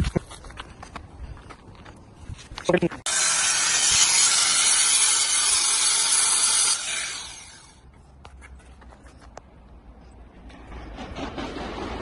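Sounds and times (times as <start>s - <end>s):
angle grinder cutting stone: 3.1s - 7.8s.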